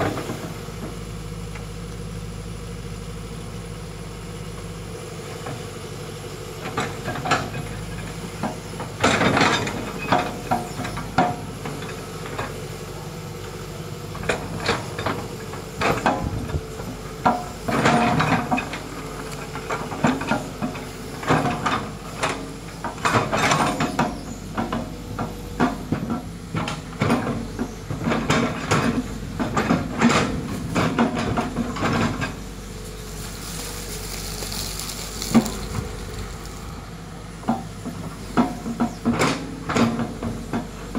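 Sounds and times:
diesel engine under load: 0:00.0 - 0:40.9
bucket scraping through soil: 0:32.6 - 0:36.9.

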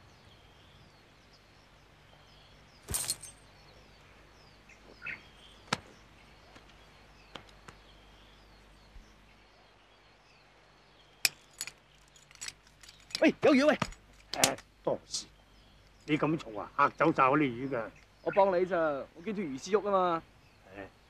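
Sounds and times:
birds chirping faintly: 0:00.0 - 0:21.0.

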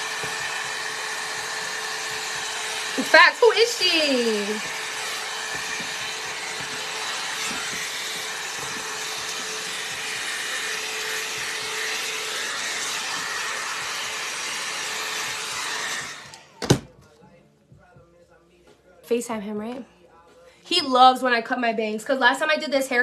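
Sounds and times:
hot-air brush blowing: 0:00.0 - 0:16.5.

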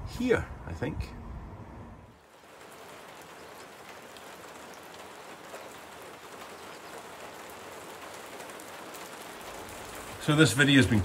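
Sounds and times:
steady rain hiss: 0:02.0 - 0:11.0
raindrops ticking: 0:02.2 - 0:11.0.

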